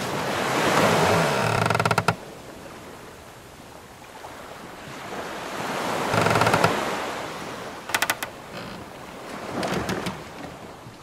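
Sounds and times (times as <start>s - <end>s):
sea waves washing: 0.0s - 11.0s
hull timbers creaking: 0.7s - 2.2s, 5.9s - 7.0s, 7.9s - 10.8s
sharp wooden creaking clicks: 0.8s - 2.2s, 6.0s - 6.9s, 7.9s - 10.6s.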